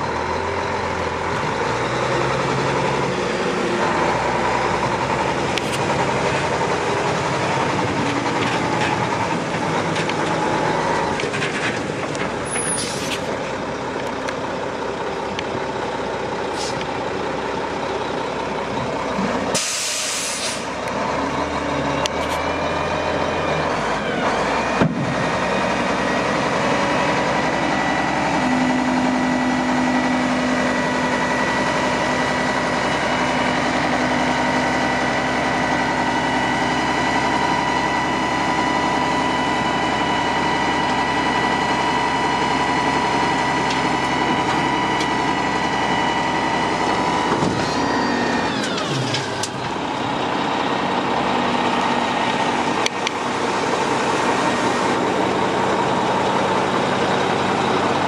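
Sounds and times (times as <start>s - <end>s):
diesel truck engine running: 0.0s - 58.0s
high hydraulic whine: 19.5s - 20.8s, 37.2s - 50.4s.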